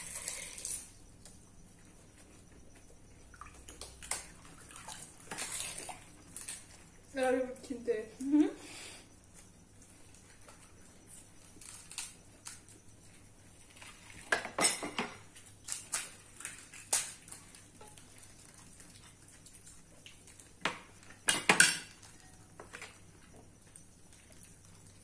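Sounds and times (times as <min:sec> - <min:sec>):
crisp puris cracking: 0:11.4 - 0:12.8, 0:15.6 - 0:17.7.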